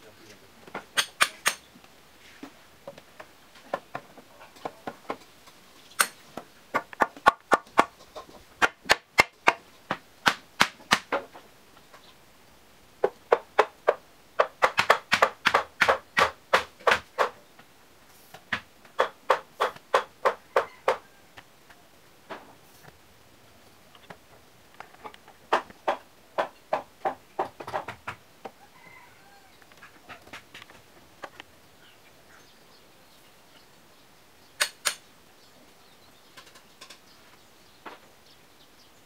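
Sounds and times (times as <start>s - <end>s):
tool striking bamboo poles: 0.7s - 1.7s, 6.0s - 11.4s, 13.0s - 17.4s, 18.4s - 21.0s, 25.5s - 28.2s.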